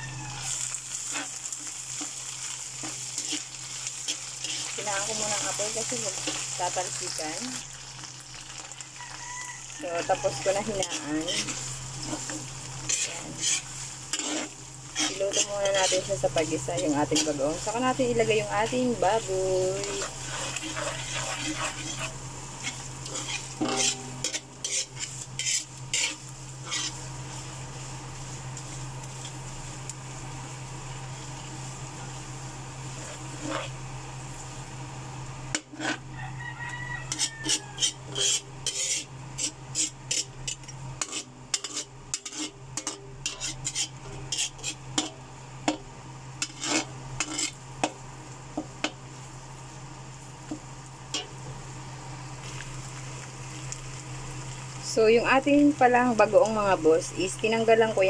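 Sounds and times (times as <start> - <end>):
metal spoon scraping a wok: 0.0 - 7.5, 9.0 - 27.8, 32.9 - 33.8, 35.5 - 45.8, 46.4 - 48.0, 51.1 - 51.3
light sizzle of frying: 0.0 - 58.0.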